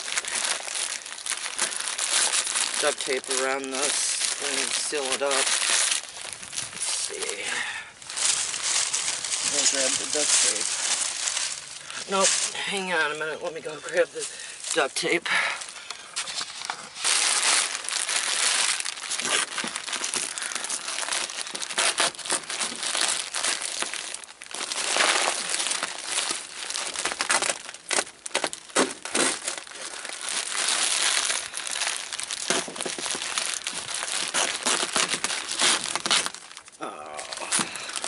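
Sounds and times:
plastic sheeting crinkling: 0:00.0 - 0:38.0
duct tape pulled off roll: 0:21.6 - 0:23.9, 0:34.0 - 0:36.4.

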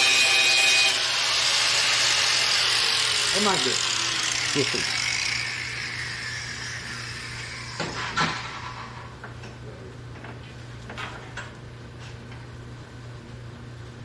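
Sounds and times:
sharp knocks and clatters: 0:07.8 - 0:09.6.

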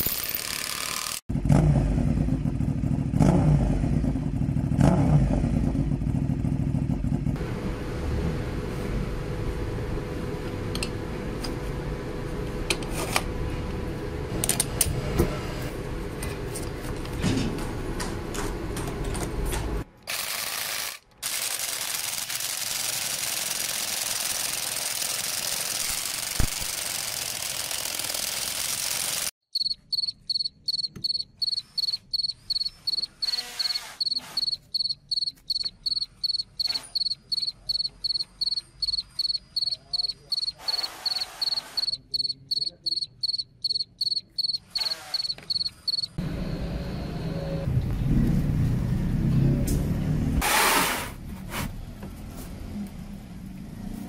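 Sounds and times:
electric welding sizzle: 0:20.1 - 0:29.3.

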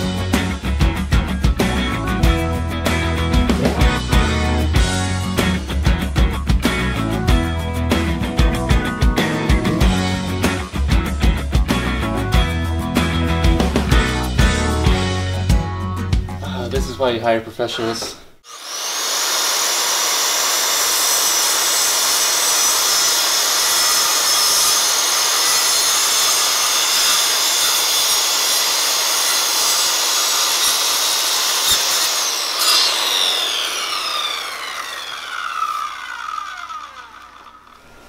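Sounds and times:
circular saw cutting wood: 0:17.8 - 0:38.0
saw blade spinning down: 0:17.8 - 0:38.0.

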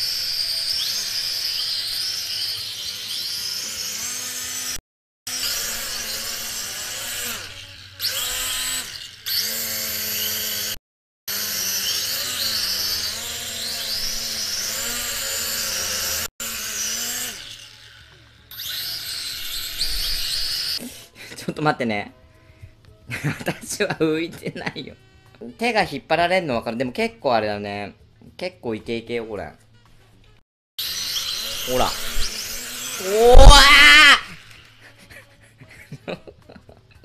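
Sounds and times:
toy drone propellers whirring: 0:00.0 - 0:21.1, 0:30.8 - 0:35.2.

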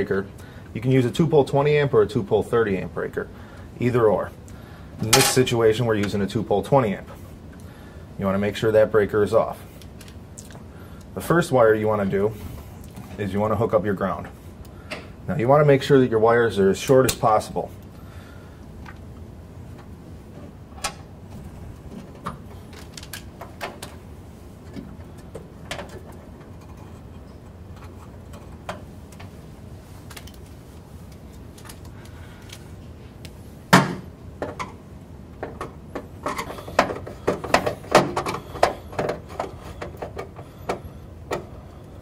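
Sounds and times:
wire handling clicks: 0:30.0 - 0:33.4.

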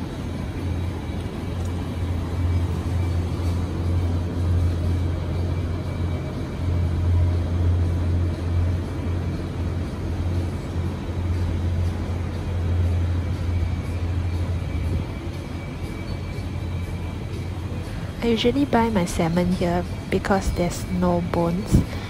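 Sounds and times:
faint store music: 0:00.0 - 0:22.0
steady low hum: 0:00.0 - 0:22.0.

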